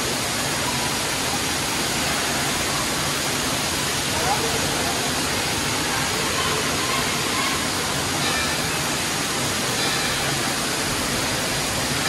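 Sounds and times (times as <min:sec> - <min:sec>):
water pouring and splashing: 0:00.0 - 0:12.0.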